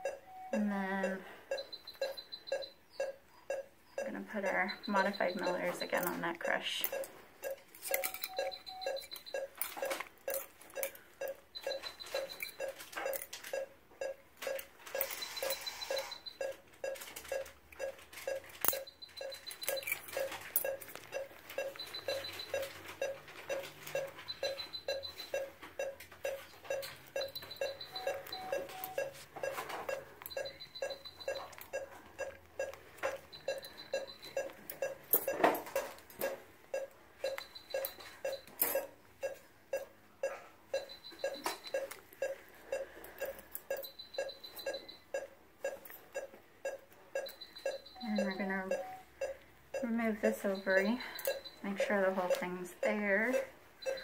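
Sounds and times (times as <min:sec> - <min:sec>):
patient monitor low beeps: 0:00.0 - 0:54.0.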